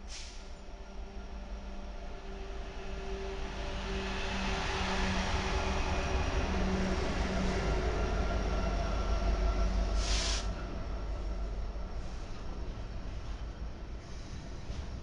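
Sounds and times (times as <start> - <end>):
brief hiss: 0.0 - 0.6, 10.0 - 10.5
diesel locomotive engine drone: 0.0 - 15.0.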